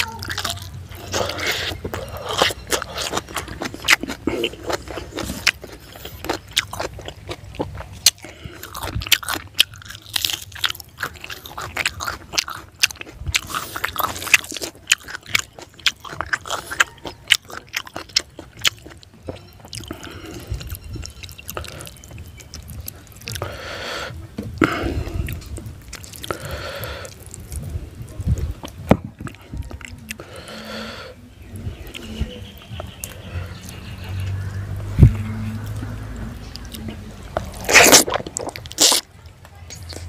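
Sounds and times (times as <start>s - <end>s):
fingers squishing food: 0.0s - 30.8s
chewing with crunches: 0.0s - 40.0s.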